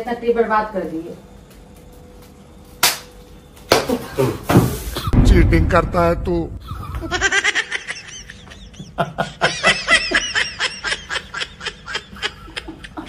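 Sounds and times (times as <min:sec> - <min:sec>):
pulsing laughter: 0:06.6 - 0:13.0.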